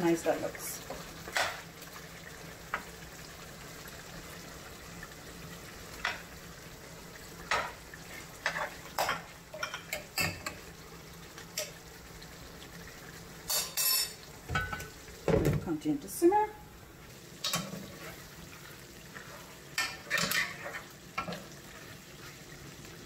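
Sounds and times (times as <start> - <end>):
simmering pot hiss: 0.0 - 23.0
metal spoon clinking on pot: 13.5 - 14.8.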